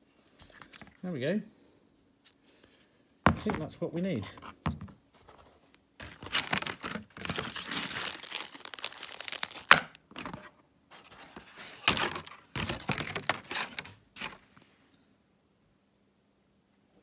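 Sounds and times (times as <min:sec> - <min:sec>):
packaging rustling and crinkling: 0:06.0 - 0:14.6.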